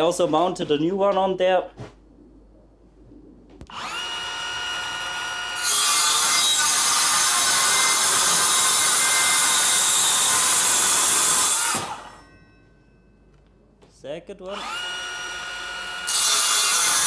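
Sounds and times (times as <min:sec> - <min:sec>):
saw motor whining: 0:03.7 - 0:12.2, 0:14.5 - 0:17.0
saw blade cutting steel: 0:05.4 - 0:12.3, 0:16.0 - 0:17.0.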